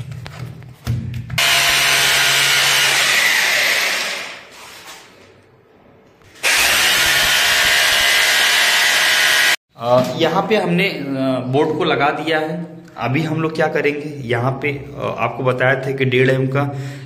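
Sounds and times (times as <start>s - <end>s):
hammer drill boring into masonry: 1.4s - 4.4s, 6.4s - 9.6s.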